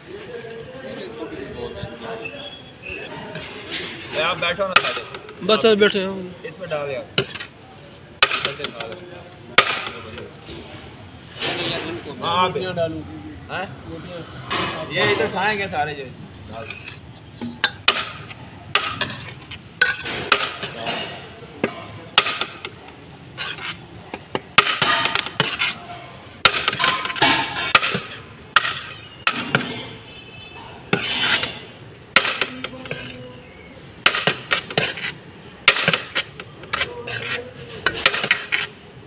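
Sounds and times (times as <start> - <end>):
metal spoon clanking on pot: 16.6 - 22.8, 23.4 - 25.8, 26.5 - 30.0.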